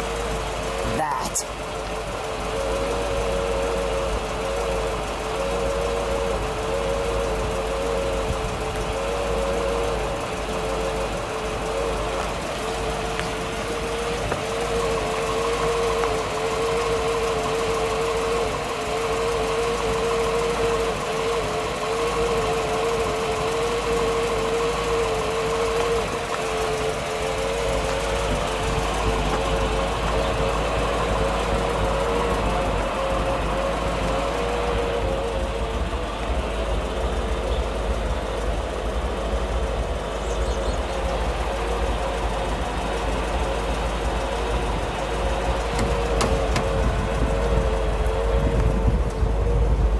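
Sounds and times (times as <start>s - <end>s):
engine running steadily: 0.0s - 49.9s.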